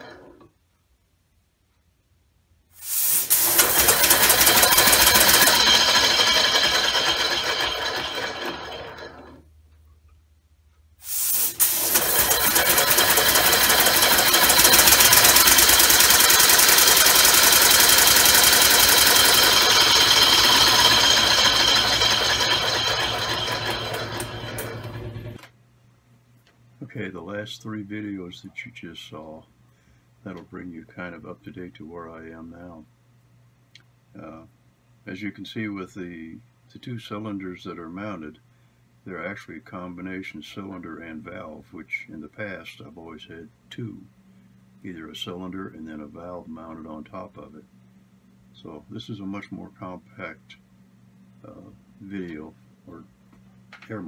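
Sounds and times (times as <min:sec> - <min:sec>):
air motor clattering: 0:02.8 - 0:09.4, 0:11.0 - 0:25.5.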